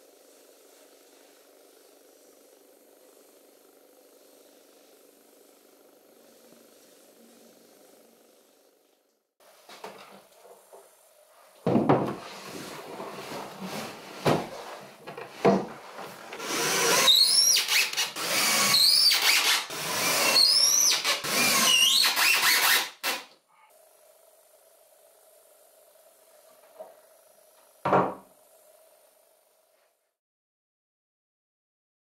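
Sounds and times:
wood knocking and rattling: 11.6s - 12.2s
cordless screwdriver whining: 16.4s - 23.3s.

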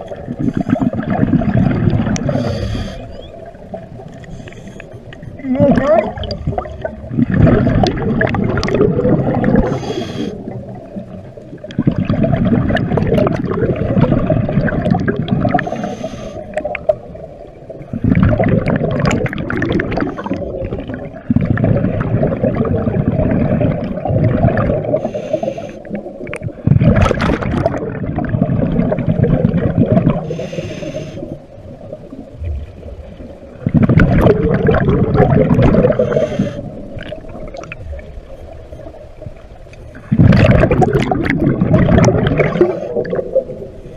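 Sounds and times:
exhaled air bubbling: 0.0s - 43.9s
regulator inhale hiss: 2.2s - 3.2s, 4.2s - 5.2s, 9.6s - 10.6s, 15.6s - 16.7s, 25.0s - 26.0s, 30.2s - 31.5s, 35.9s - 36.9s.

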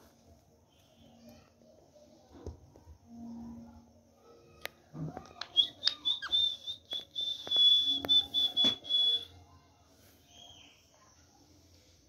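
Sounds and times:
sharp bird chirps and clicks: 5.4s - 8.2s
parakeet whistling: 5.5s - 9.3s.

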